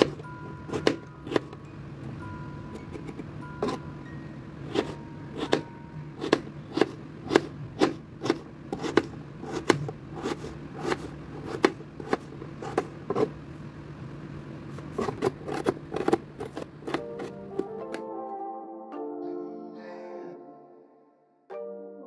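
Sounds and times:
knife chopping on plastic board: 0.0s - 1.6s, 4.7s - 13.4s, 14.8s - 18.0s
steady low hum: 0.0s - 17.8s.

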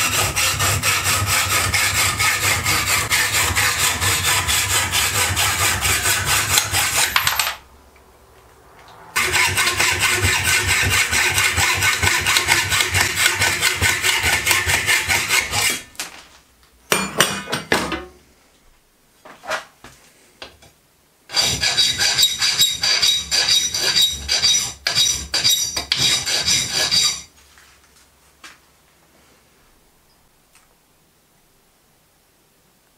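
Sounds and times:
hacksaw rasping on metal: 0.0s - 7.4s, 9.2s - 15.9s, 21.3s - 27.3s.

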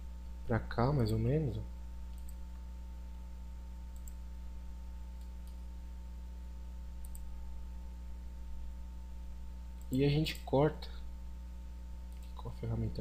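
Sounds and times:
low electrical hum: 0.0s - 13.0s
faint computer mouse clicks: 2.1s - 2.4s, 3.9s - 4.2s, 7.0s - 7.3s.

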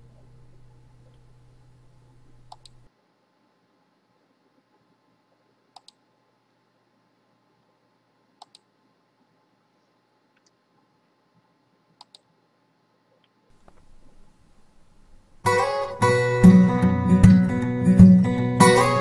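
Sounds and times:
computer mouse clicks: 2.4s - 2.9s, 5.7s - 6.0s, 8.4s - 8.7s, 10.3s - 10.6s, 12.0s - 12.3s
strummed acoustic guitar music: 15.4s - 19.0s.

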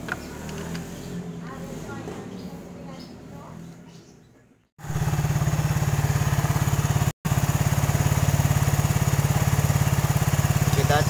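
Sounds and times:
motorcycle engine running: 4.8s - 11.0s.

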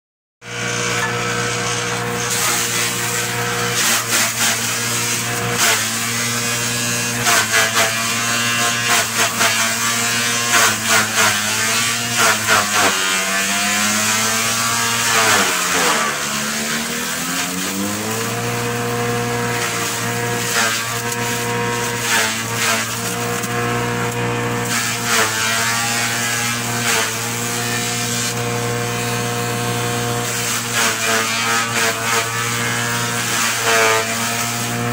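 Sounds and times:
electric forage chopper running: 0.4s - 34.9s
blades chopping grass: 2.2s - 8.0s, 8.8s - 25.4s.

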